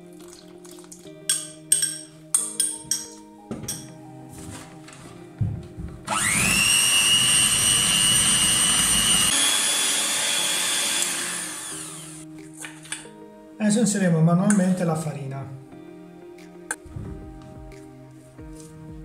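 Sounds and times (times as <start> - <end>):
electric hand mixer whining: 6.1 - 12.3.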